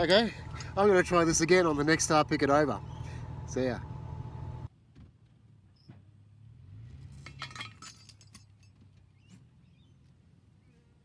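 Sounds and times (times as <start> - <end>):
light metallic clinks: 7.2 - 9.1.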